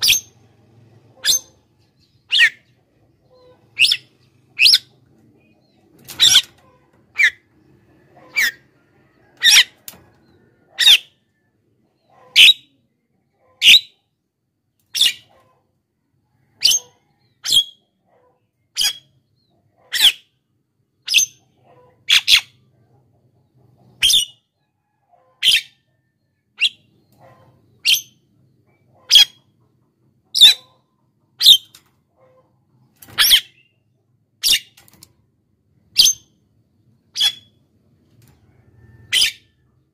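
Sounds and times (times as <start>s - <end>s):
myna bird calling: 1.1s - 7.5s.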